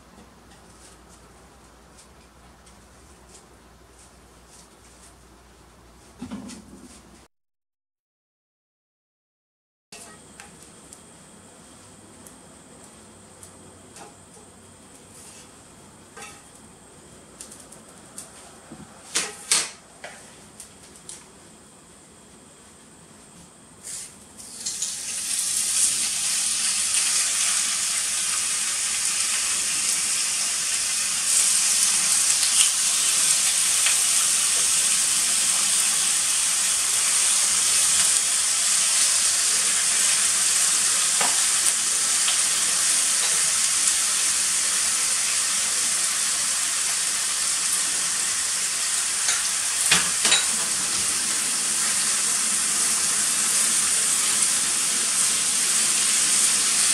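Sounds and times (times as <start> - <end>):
meat sizzling in a hot pot: 15.0 - 16.6, 23.8 - 56.9.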